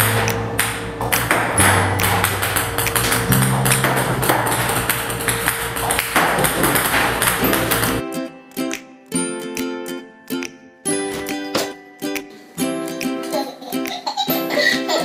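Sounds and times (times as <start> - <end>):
table tennis balls bouncing: 0.0 - 8.0
background music with low notes: 0.0 - 15.0.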